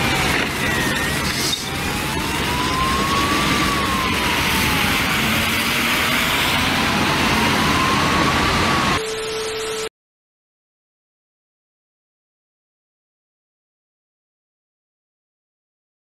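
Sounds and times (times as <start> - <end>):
traffic on wet street: 0.0 - 9.0
police siren wailing: 0.0 - 9.9.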